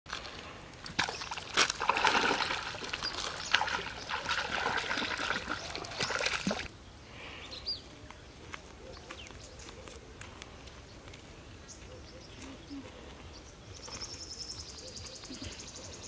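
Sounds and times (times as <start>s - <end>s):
fish thrashing in water: 0.1s - 6.7s
bird chirp: 11.6s - 16.0s.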